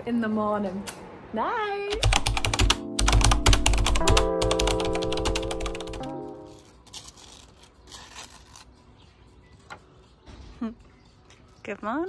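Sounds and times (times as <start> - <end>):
keyboard typing clicks: 1.9 - 6.1.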